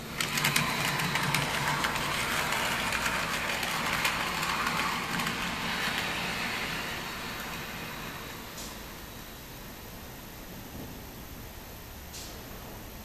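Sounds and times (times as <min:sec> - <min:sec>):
wheels clicking on rails: 0:00.0 - 0:09.3
small electric motor humming: 0:00.2 - 0:08.4.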